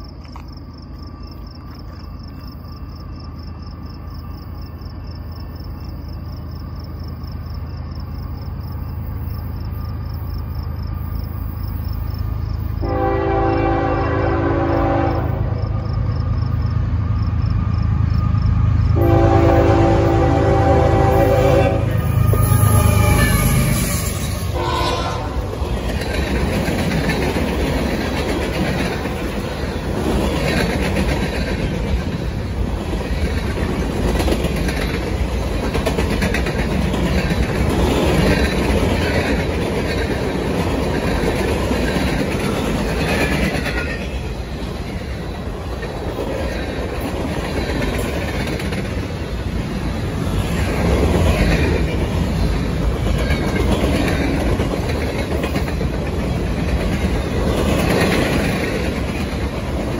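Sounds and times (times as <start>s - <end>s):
freight train rumbling past: 0.0s - 59.9s
wheels clacking over rail joints: 25.2s - 59.9s.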